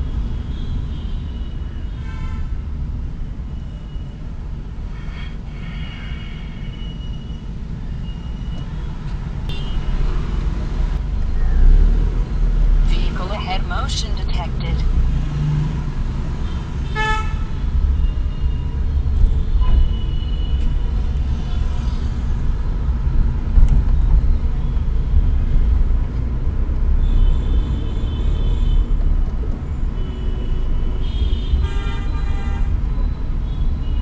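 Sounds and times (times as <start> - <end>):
vehicle horns tooting: 0.5 - 2.5, 4.9 - 7.4, 9.5 - 10.0, 16.4 - 20.8, 27.0 - 29.0, 30.0 - 34.0
road rumble inside car: 6.8 - 34.0.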